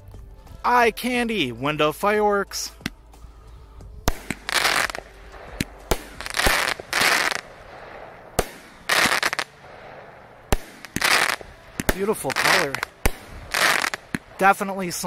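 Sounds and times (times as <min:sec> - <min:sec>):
rushing hiss of fireworks: 0:04.1 - 0:07.5, 0:08.4 - 0:09.6, 0:10.5 - 0:15.0
fireworks reports: 0:04.1 - 0:15.0.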